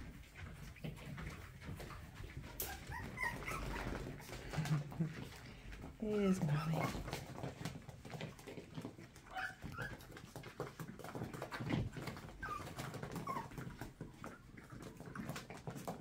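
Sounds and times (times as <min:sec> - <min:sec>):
small paws scuffling and clicking: 0:00.0 - 0:16.0
puppies whimpering: 0:01.2 - 0:05.5, 0:09.1 - 0:10.5, 0:11.1 - 0:14.9.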